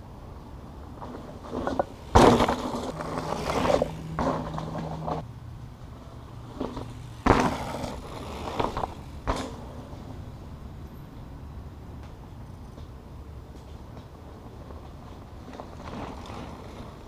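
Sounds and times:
bike landing thud: 1.0 - 5.2, 6.5 - 10.1
tyres crunching over dirt and leaves: 1.0 - 5.2.

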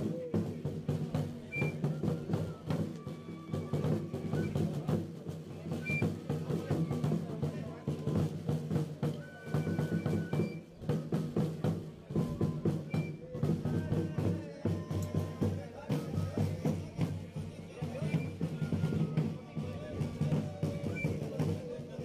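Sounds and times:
drum beating: 0.0 - 22.0
flute playing: 1.4 - 4.8, 5.7 - 6.1, 9.0 - 10.9, 12.0 - 13.4, 18.0 - 21.4.

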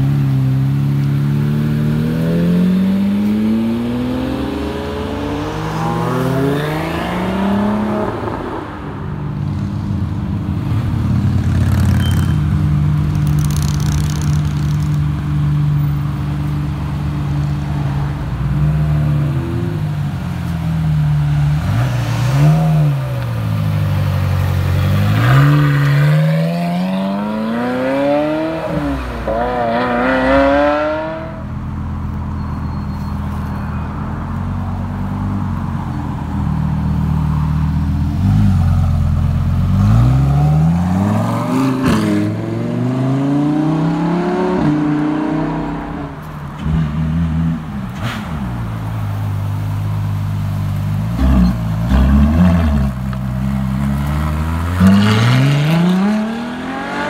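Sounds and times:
sports car engine revving: 24.0 - 31.4
second car engine revving: 50.7 - 57.0.

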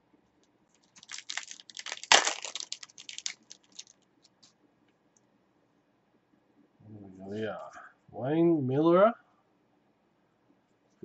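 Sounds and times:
foil wrapper tearing and crinkling: 0.8 - 4.0.

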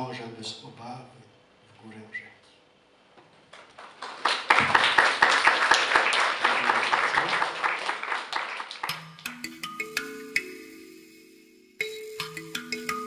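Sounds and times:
audience applauding: 3.5 - 9.0
music: 8.8 - 13.0.

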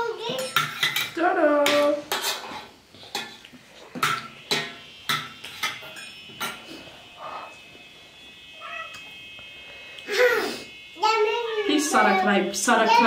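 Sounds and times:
spoons clinking on metal dishes: 0.3 - 6.8.

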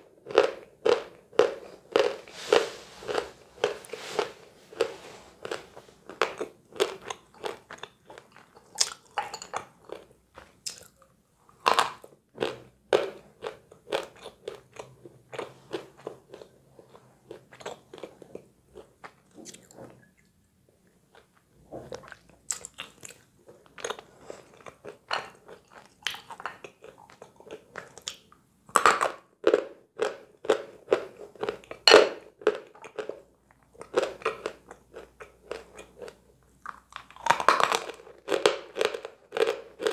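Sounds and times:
chalk crunching while chewed: 0.3 - 20.4.

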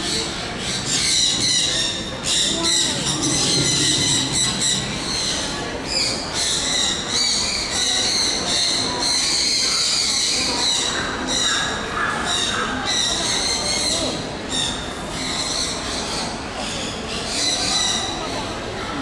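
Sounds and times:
birds squawking and chirping: 0.0 - 18.6
hall noise: 1.7 - 6.4.

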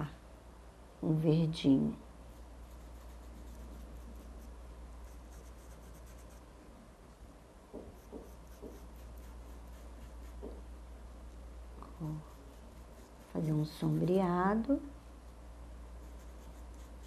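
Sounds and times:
steady low hum: 0.0 - 17.0
paintbrush rubbing on fabric: 2.3 - 6.5, 7.8 - 10.6, 12.0 - 14.3, 16.0 - 17.0
soft knocks: 7.7 - 8.9, 10.4 - 10.7.

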